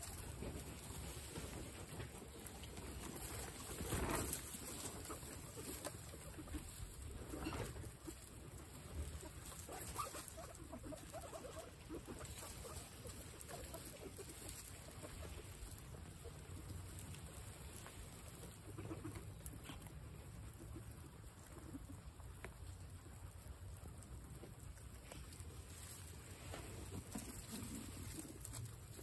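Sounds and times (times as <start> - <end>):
loud rustle: 0.0 - 19.2
guinea pig soft calls: 0.0 - 29.0
guinea pigs munching grass: 0.0 - 29.0.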